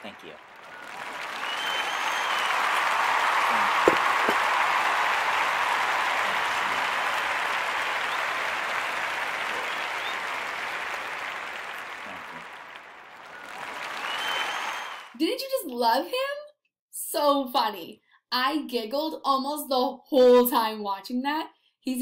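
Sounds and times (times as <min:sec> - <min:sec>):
crowd applause: 0:00.0 - 0:15.2.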